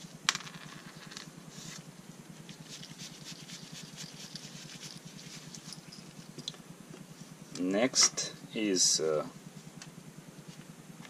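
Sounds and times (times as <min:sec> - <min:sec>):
low steady hum: 0:00.0 - 0:11.0
gloved hands rustling and scratching: 0:01.5 - 0:06.4.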